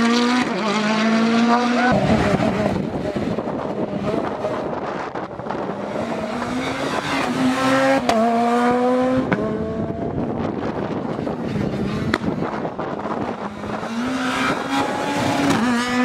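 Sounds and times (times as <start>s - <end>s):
rally car engine accelerating: 0.0s - 16.0s.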